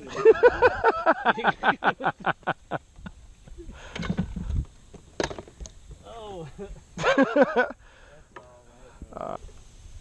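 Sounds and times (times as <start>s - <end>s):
man laughing hard: 0.0s - 2.9s, 7.0s - 7.8s.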